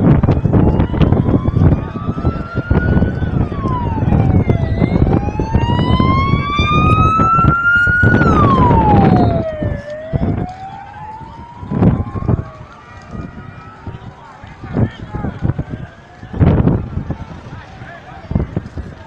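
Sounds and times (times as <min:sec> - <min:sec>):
emergency siren wailing: 0:00.0 - 0:14.8
loud rumbling noise: 0:00.0 - 0:17.8.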